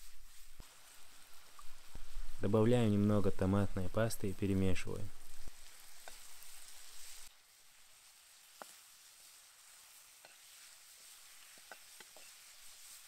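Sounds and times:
sauce sizzling in a frying pan: 0.0s - 13.0s.

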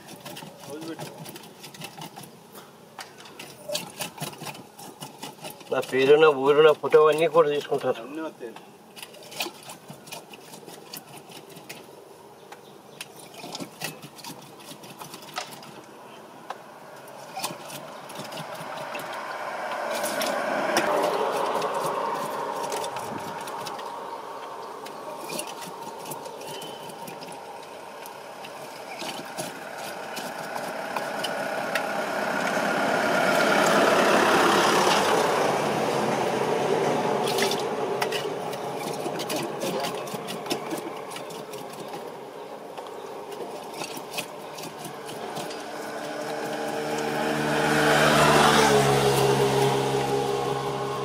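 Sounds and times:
vehicles passing: 15.6s - 51.0s.

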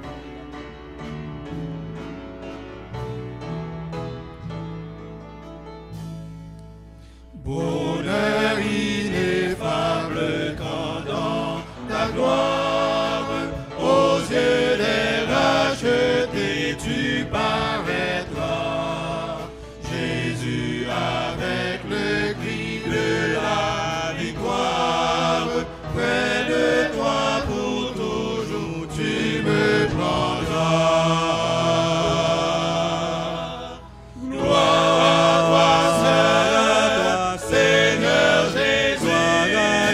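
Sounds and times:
congregation singing a hymn: 7.0s - 39.9s.

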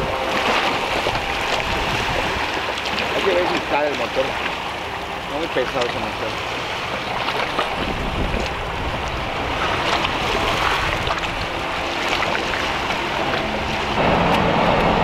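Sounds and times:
wind on microphone: 0.0s - 2.7s, 6.9s - 15.0s
car driving hum: 0.0s - 15.0s
outboard motor running: 0.0s - 15.0s
waves washing at shore: 0.0s - 15.0s.

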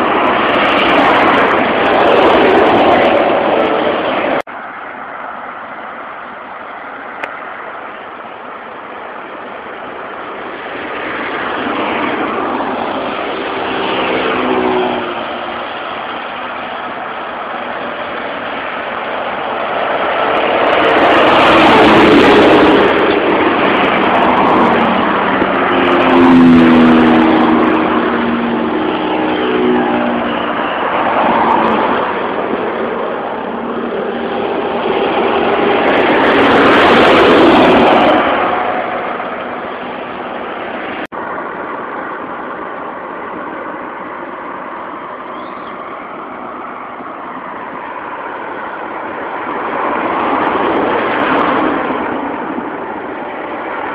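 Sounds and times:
cars and trucks passing: 0.0s - 53.9s
engine hum: 0.0s - 53.9s.

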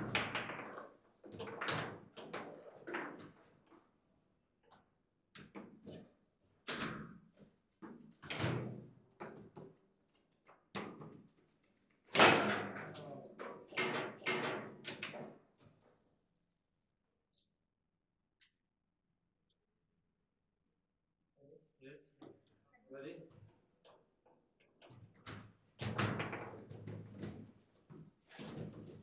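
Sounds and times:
foosball ball cracking against figures: 0.0s - 3.4s, 10.8s - 11.2s, 12.0s - 15.5s, 25.1s - 29.0s.

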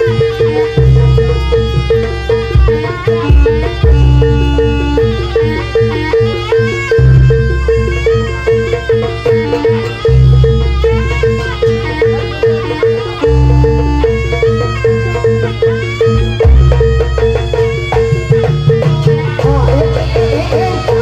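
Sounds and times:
heavy drum and bass: 0.0s - 14.4s
bending melody line: 0.0s - 21.0s
repeated struck note: 0.0s - 21.0s.

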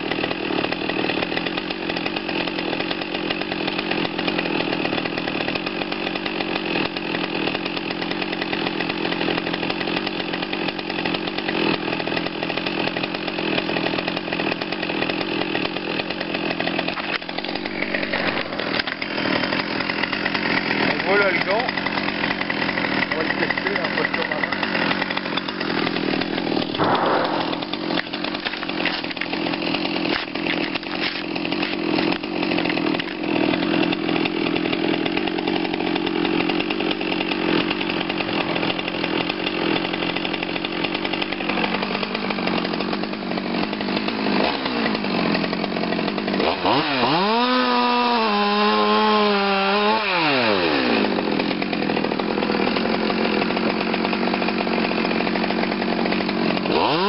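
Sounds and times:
chainsaw cutting into glove: 0.0s - 57.0s
chainsaw revving: 0.0s - 57.0s.

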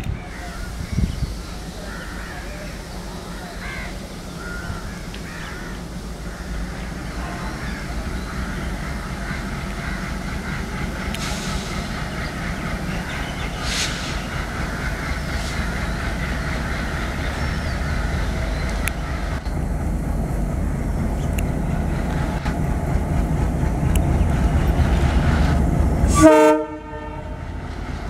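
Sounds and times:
locomotive diesel engine running: 0.2s - 28.0s
crows cawing: 3.4s - 6.8s
short hisses: 11.2s - 12.0s, 13.6s - 14.5s.

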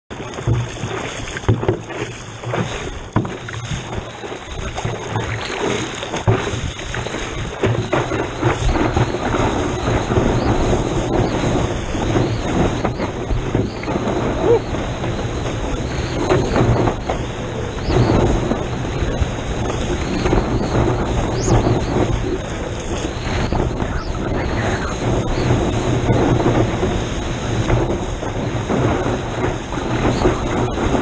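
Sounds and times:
water lapping against boat: 0.1s - 31.0s.

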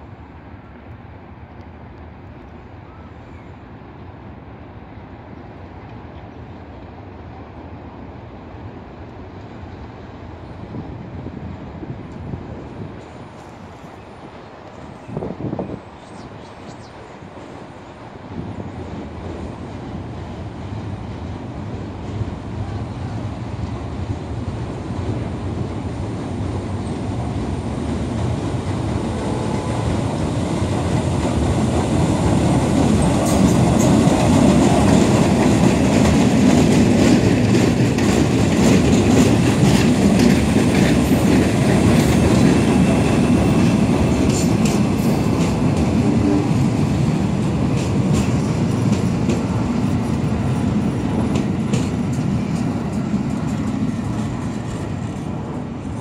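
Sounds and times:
train rumbling past: 0.0s - 56.0s
wheels clacking over rail joints: 28.2s - 55.9s.

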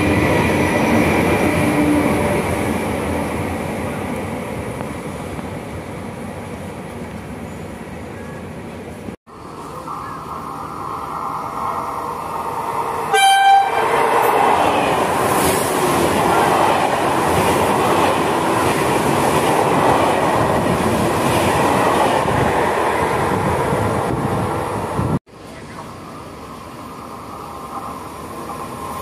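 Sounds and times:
train passing: 0.0s - 29.0s
train horn blast: 13.1s - 14.0s.

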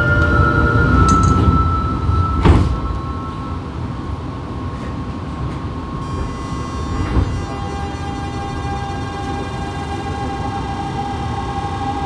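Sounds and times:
train under-floor hum and rumble: 0.0s - 12.0s
inverter high whine: 5.8s - 12.0s.

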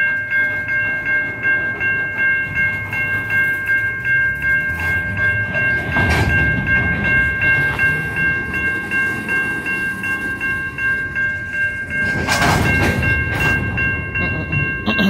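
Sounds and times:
crossing bell ringing: 0.0s - 15.0s
rumble of rolling freight cars: 0.0s - 15.0s.

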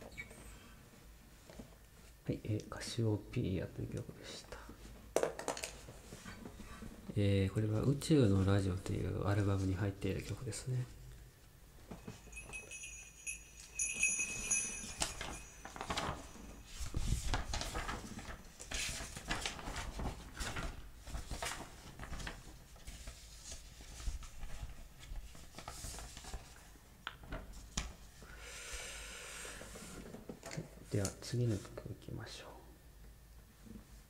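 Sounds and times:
high ringing tone: 11.9s - 17.0s.

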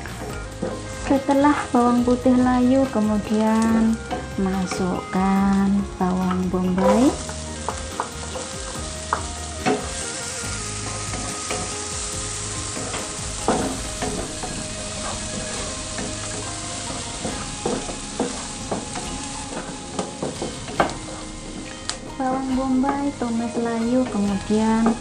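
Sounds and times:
onion and garlic sizzling: 0.0s - 25.0s
wooden spatula knocking pan: 12.7s - 23.1s.

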